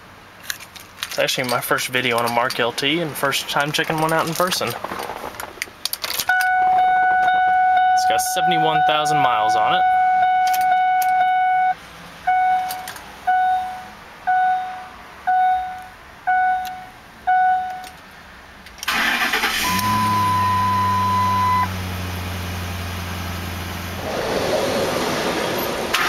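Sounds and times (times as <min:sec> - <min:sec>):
steady high beep: 0:06.3 - 0:12.7, 0:13.3 - 0:17.9, 0:19.6 - 0:21.7
cabin warning chimes: 0:06.3 - 0:17.9
truck engine cranking and idling: 0:15.2 - 0:26.0.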